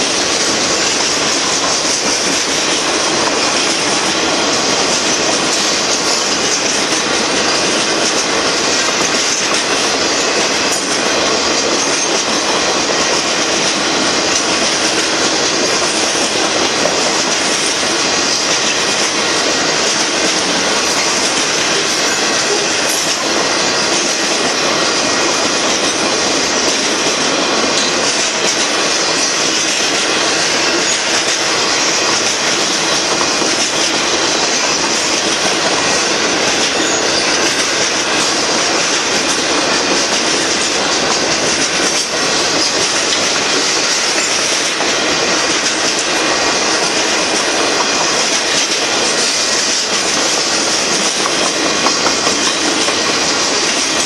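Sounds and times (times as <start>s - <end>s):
train wheels rolling on rails: 0.0s - 54.0s.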